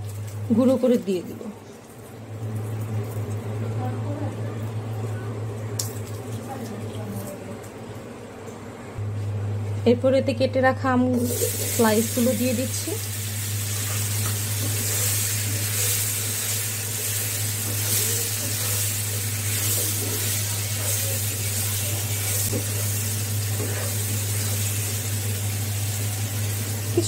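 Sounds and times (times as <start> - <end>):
low steady hum: 0.0 - 27.0
mango slices sizzling in oil: 11.2 - 27.0.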